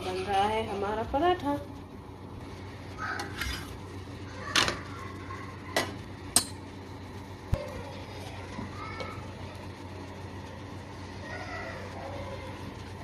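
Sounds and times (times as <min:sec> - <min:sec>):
low background hum: 0:00.0 - 0:13.0
soft utensil scrape: 0:03.2 - 0:03.8.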